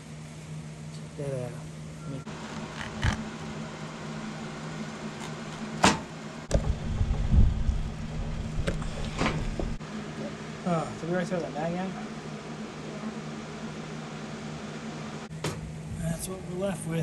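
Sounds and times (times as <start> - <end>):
mechanical hum: 0.0 - 17.0
low rumble: 6.5 - 9.8.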